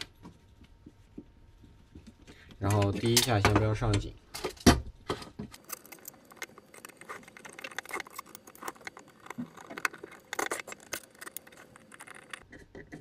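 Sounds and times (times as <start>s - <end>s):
screwdriver clicking and scraping screws: 5.5s - 13.0s.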